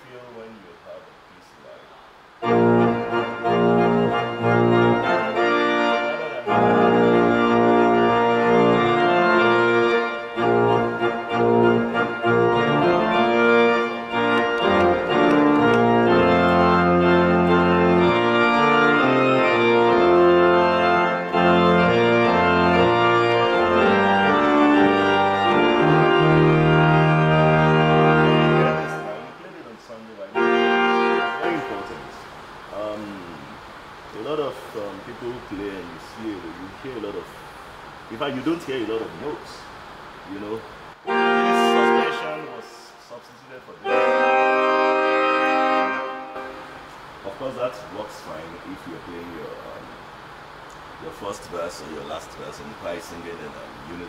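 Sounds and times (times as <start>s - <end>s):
church organ playing a hymn: 2.4s - 33.4s, 40.3s - 49.6s.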